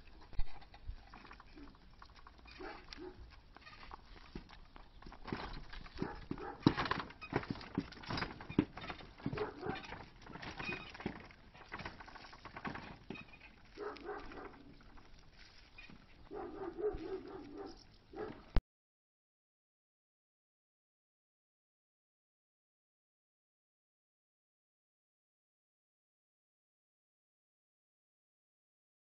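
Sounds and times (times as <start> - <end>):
horse hooves clopping on pavement: 0.0 - 18.6
wooden cart rattling: 0.0 - 18.6.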